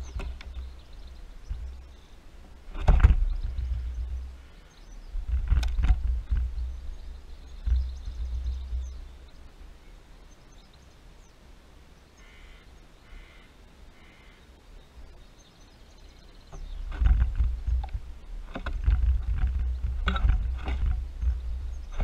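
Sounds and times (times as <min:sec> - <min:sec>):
wind buffeting microphone: 0:00.0 - 0:09.6, 0:16.4 - 0:22.0
faint short bird calls: 0:12.1 - 0:17.0.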